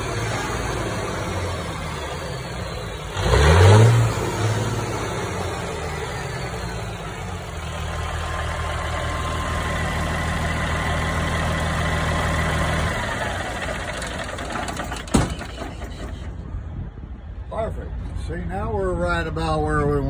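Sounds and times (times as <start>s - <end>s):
diesel engine running with whine: 0.0s - 18.2s.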